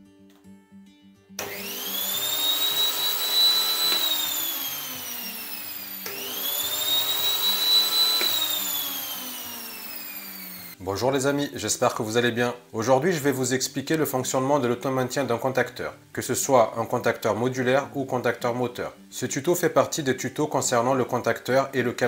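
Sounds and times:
electric motor whining: 0:01.4 - 0:10.8
quiet background music: 0:10.8 - 0:22.0.

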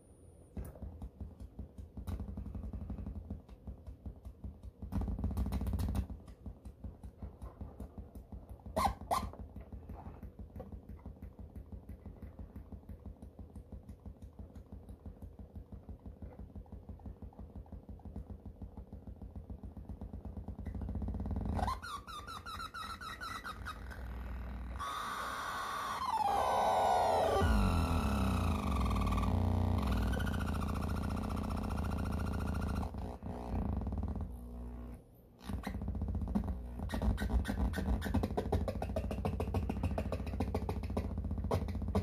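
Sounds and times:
squealing feedback tone: 0:21.5 - 0:32.9
stuttering electronic rumble: 0:23.6 - 0:35.0.

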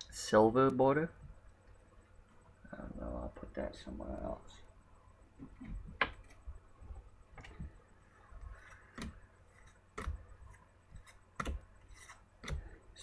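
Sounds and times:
trading cards clicking and tapping: 0:08.7 - 0:10.3, 0:10.9 - 0:12.8.

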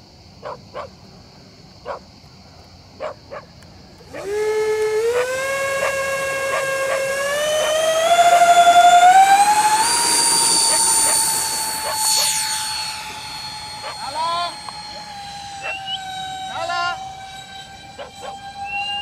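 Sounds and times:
electric jet fans whining: 0:00.0 - 0:19.0
dog barking: 0:00.4 - 0:00.9, 0:01.8 - 0:02.0, 0:03.0 - 0:03.5.

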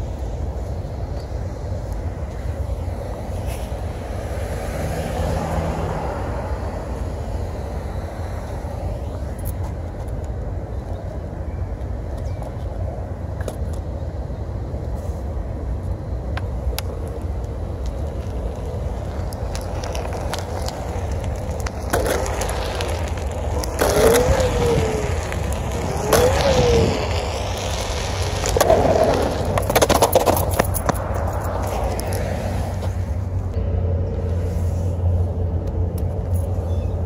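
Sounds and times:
electric board rumble: 0:12.8 - 0:37.0
motor whine: 0:21.6 - 0:29.6.

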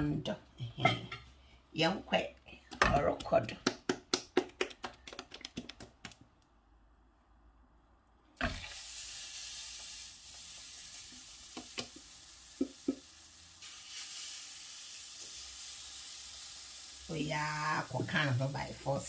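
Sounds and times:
batter sizzling in frying pan: 0:08.4 - 0:19.0.

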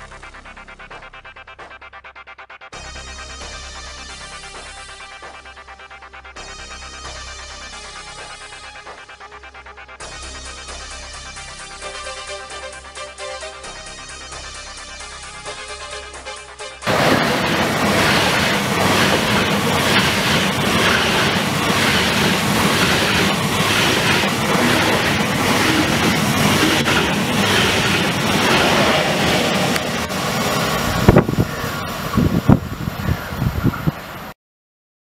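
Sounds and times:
high-speed train passing: 0:16.8 - 0:34.4.

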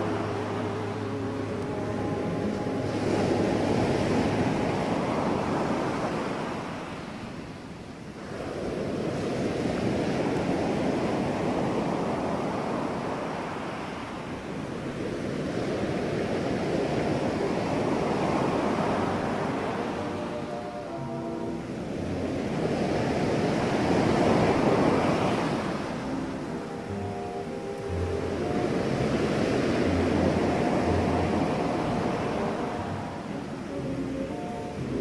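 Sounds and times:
waves washing onto beach: 0:00.0 - 0:35.0.

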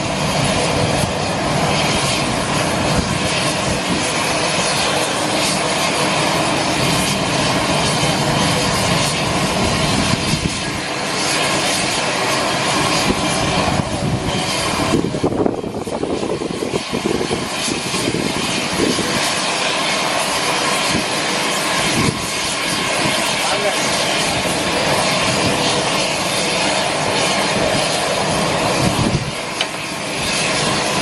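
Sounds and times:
turboprop engines droning: 0:00.0 - 0:31.0.

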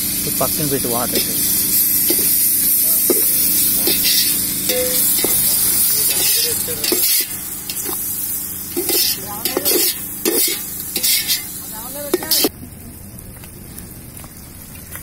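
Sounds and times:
vegetables sizzling in hot oil: 0:00.0 - 0:12.6
metal skimmer scraping pot: 0:03.0 - 0:08.0, 0:08.7 - 0:11.5.

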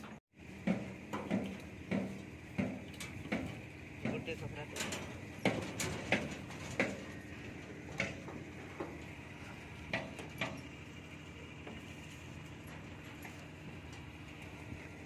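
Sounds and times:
metallic clicks of wire tying: 0:02.6 - 0:07.1.

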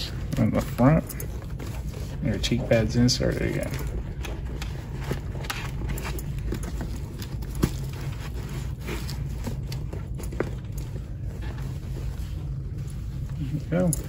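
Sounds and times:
foam pad rustling: 0:00.0 - 0:14.0.

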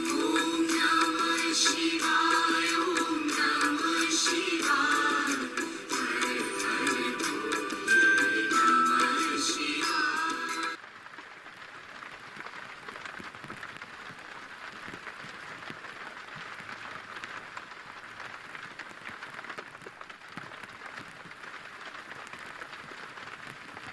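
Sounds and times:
music: 0:00.0 - 0:10.8
fine crackling patter: 0:10.8 - 0:23.9.

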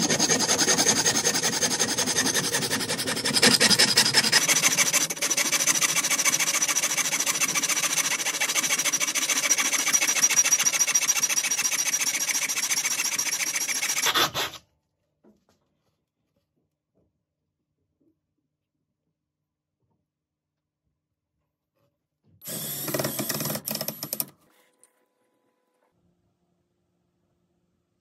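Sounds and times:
hand saw cutting metal: 0:00.0 - 0:14.6.

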